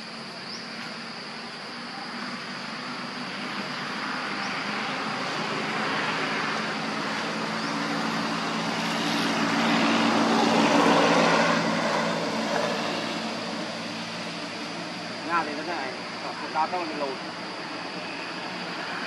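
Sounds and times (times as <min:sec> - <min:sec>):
engine droning past: 0:00.2 - 0:19.0.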